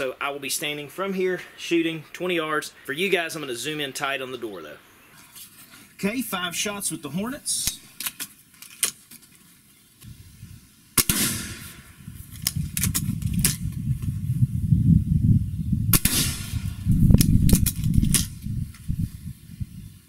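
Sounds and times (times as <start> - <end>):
air rifle shots: 11.0 - 12.0, 15.9 - 18.3
air rifle cocking clicks: 12.4 - 13.6, 17.2 - 18.3.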